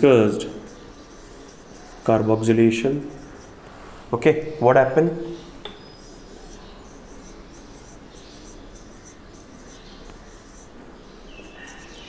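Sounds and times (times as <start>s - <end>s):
marker scratching on whiteboard: 0.2s - 2.3s, 2.9s - 3.6s, 5.9s - 10.8s, 11.4s - 12.0s.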